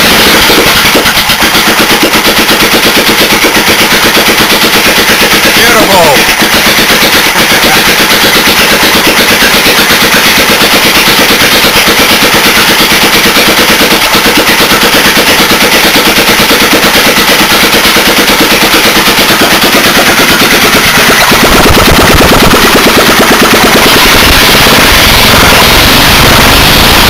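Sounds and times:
petrol engine running: 3.4 - 12.4, 15.8 - 27.0.

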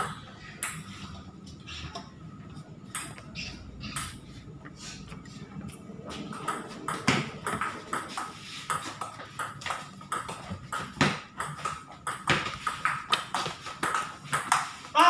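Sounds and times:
ping pong ball hitting paddles: 0.0 - 0.9, 2.9 - 4.2, 6.3 - 15.0
ball bouncing on table: 6.3 - 14.7.

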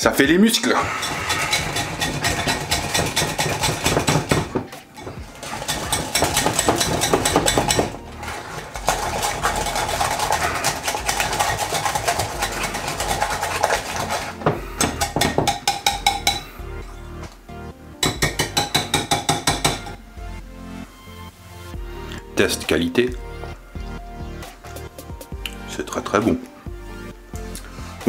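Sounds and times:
wire whisk clinking on glass bowl: 15.0 - 16.5.

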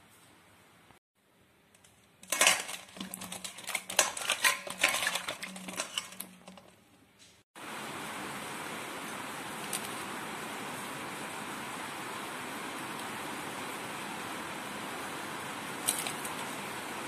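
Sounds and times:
steady hiss: 7.1 - 17.0.

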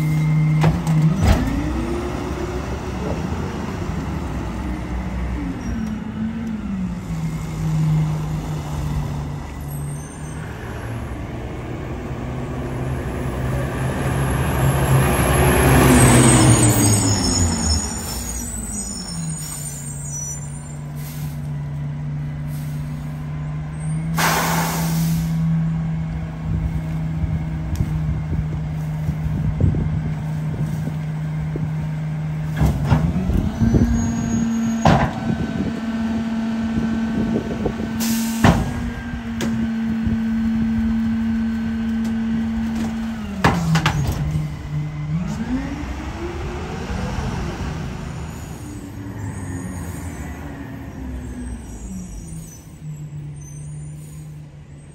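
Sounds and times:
garbage truck diesel engine: 0.0 - 54.9
air brakes hissing: 16.4 - 21.6, 22.4 - 25.5, 38.0 - 38.8, 48.3 - 54.6.

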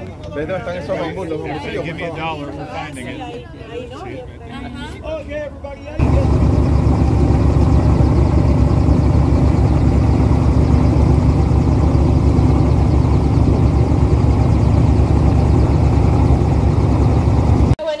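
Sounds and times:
airboat engine and propeller: 6.0 - 17.8.

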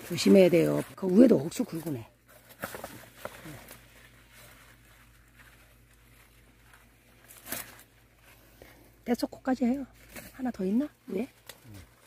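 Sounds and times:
leaves rustling: 0.0 - 12.0
plant stalks snapping: 6.6 - 8.0, 11.2 - 12.0.

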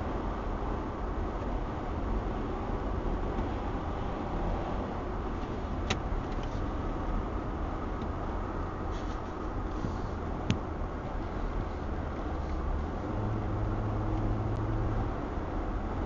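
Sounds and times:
car road and engine rumble: 0.0 - 16.0.

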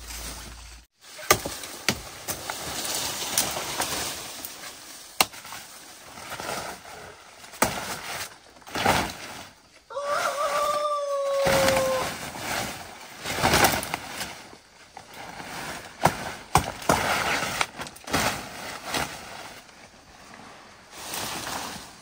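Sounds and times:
large leaves rustling: 0.0 - 22.0
machete chopping plant stems: 1.1 - 4.0, 5.2 - 5.7, 7.4 - 9.3, 16.0 - 18.4.

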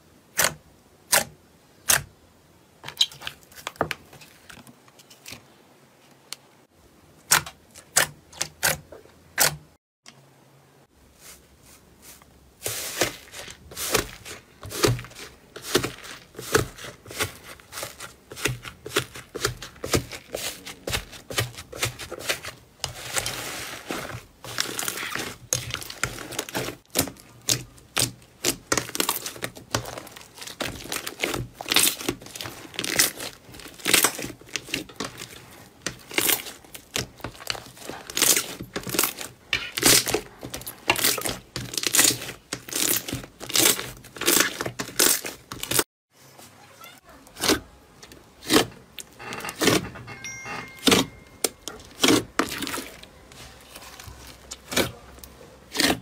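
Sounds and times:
slime crackling and squelching: 12.0 - 45.9, 50.9 - 56.0.

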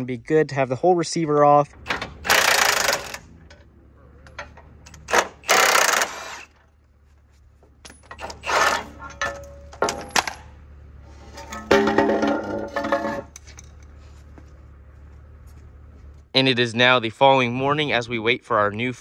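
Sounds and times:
impact wrench hammering: 1.8 - 3.2, 4.9 - 6.6.

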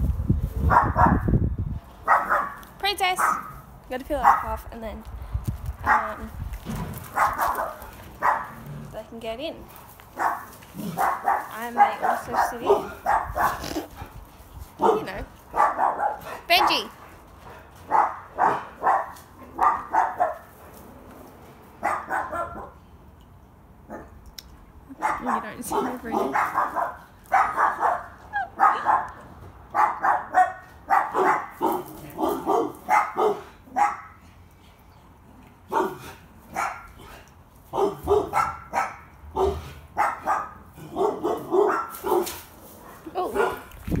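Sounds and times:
dog barking: 0.7 - 1.3, 2.1 - 2.6, 3.2 - 3.6, 4.2 - 4.6, 5.9 - 6.2, 7.1 - 8.6, 10.2 - 13.7, 14.8 - 16.9, 17.9 - 20.4, 21.8 - 22.8, 25.0 - 34.2, 35.7 - 37.0, 37.7 - 43.7.

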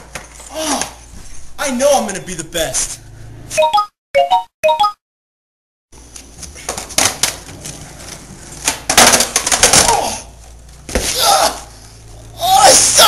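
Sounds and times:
person groaning in pain: 0.5 - 1.0, 9.8 - 10.4.

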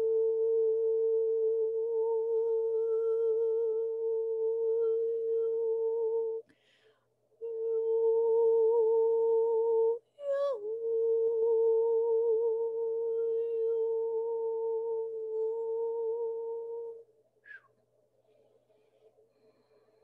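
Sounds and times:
person humming a held note: 0.0 - 6.5, 7.4 - 17.6
soft breath: 6.4 - 7.2, 18.3 - 20.0.

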